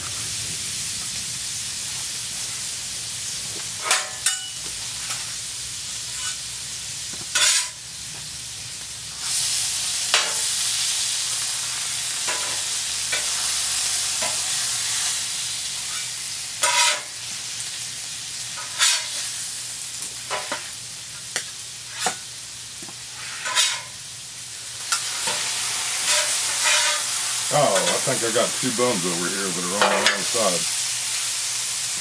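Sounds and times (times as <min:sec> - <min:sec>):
burgers sizzling on griddle: 0:00.0 - 0:32.0
metal spatulas scraping griddle: 0:06.1 - 0:06.4, 0:07.3 - 0:07.8, 0:15.9 - 0:17.2, 0:18.6 - 0:19.3, 0:21.9 - 0:22.3, 0:23.1 - 0:24.0, 0:24.9 - 0:27.2, 0:27.8 - 0:28.0, 0:29.8 - 0:30.4.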